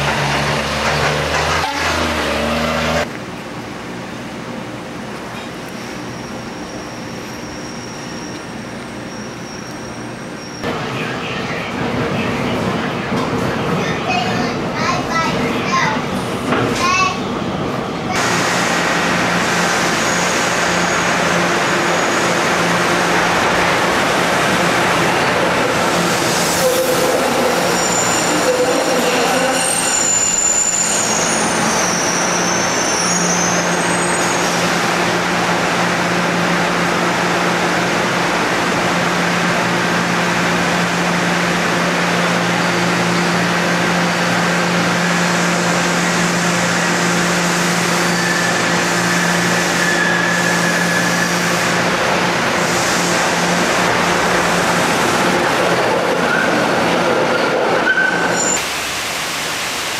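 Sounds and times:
streetcar humming: 0.0s - 59.9s
wheels squealing: 26.3s - 34.6s, 56.1s - 58.6s.

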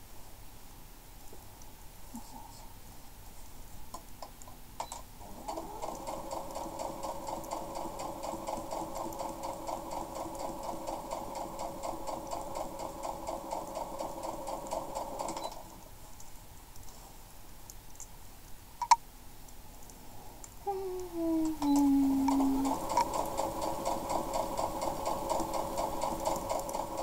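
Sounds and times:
sewing machine stitching: 5.2s - 15.7s, 21.7s - 27.0s.

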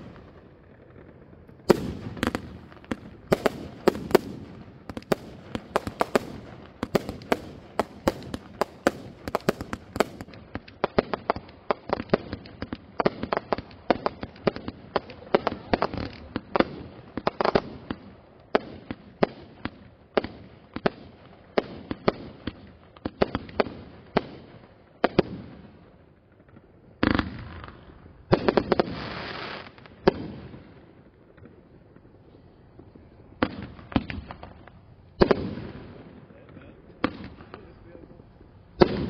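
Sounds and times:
fireworks bangs: 0.0s - 39.0s.

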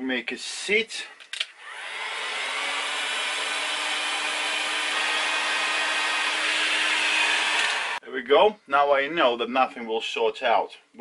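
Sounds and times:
heat gun blowing air: 1.6s - 8.0s.

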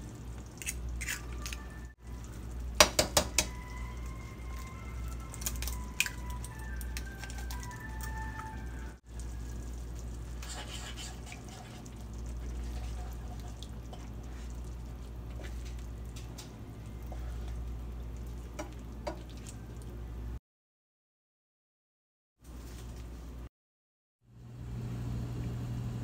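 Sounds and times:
food popping and crackling in pan: 2.3s - 3.6s, 5.1s - 7.8s.

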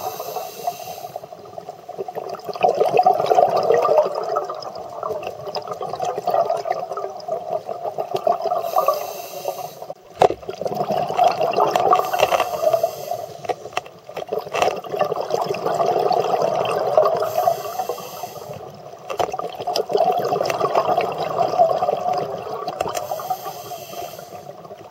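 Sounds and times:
regulator inhalation hiss: 0.0s - 1.4s, 8.6s - 10.0s, 12.0s - 13.7s, 17.2s - 18.7s, 23.0s - 24.6s
exhaled bubbles gurgling: 0.0s - 24.9s.

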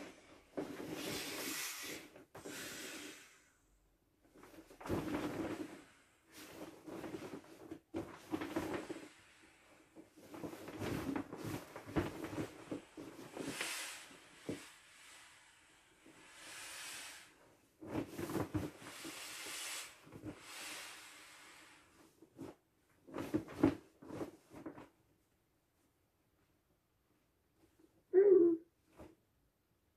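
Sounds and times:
air hissing out: 13.4s - 17.4s, 18.9s - 21.8s.

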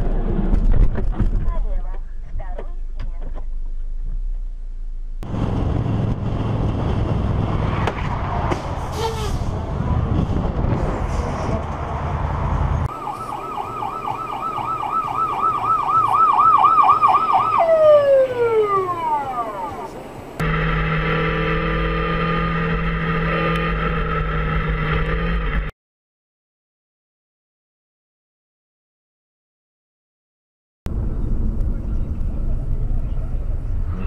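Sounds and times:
road noise: 0.0s - 25.7s, 30.9s - 34.0s
ambulance siren yelping: 12.9s - 20.0s
motorcycle engine: 19.8s - 25.7s.

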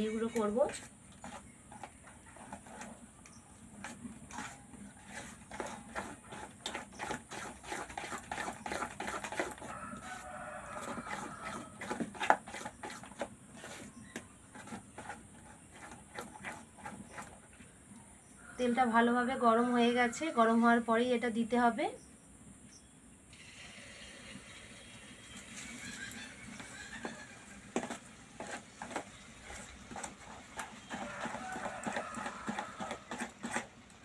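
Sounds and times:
metal spoon scraping steel bowl: 25.2s - 33.7s.

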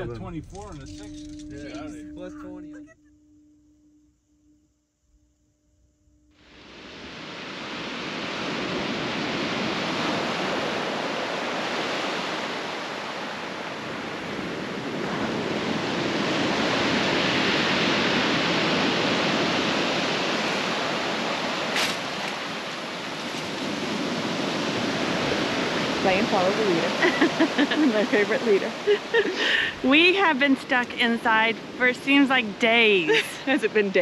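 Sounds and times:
surf breaking on rocks: 6.5s - 32.4s.

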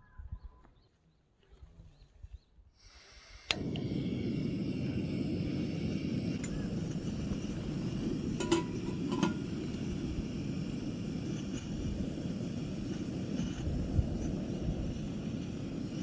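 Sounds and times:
wind on microphone: 0.0s - 0.7s, 3.5s - 16.0s
motorcycle engine rumble: 3.5s - 16.0s.

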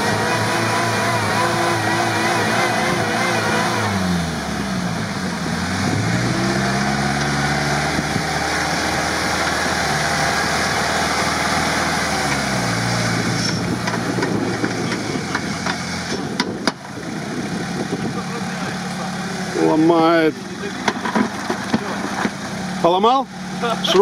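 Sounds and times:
off-road engine revving under load: 0.0s - 24.0s.

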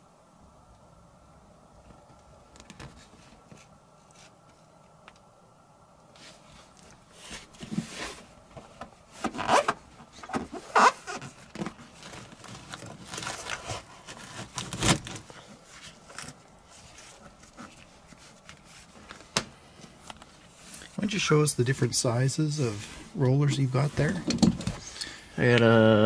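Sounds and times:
foil mat crinkling and rustling: 6.3s - 24.6s
loud foil crackles: 10.5s - 17.7s.

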